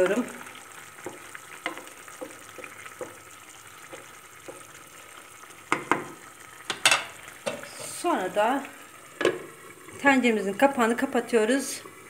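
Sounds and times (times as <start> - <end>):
stew sizzling: 0.0 - 12.0
spoon knocking against pan: 1.0 - 4.8, 5.7 - 7.7.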